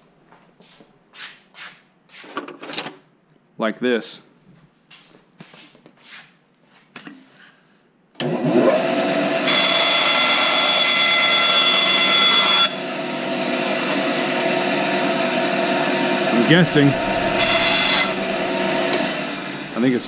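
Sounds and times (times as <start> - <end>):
bandsaw running: 8.8 - 20.0
saw blade cutting wood whine: 9.4 - 20.0.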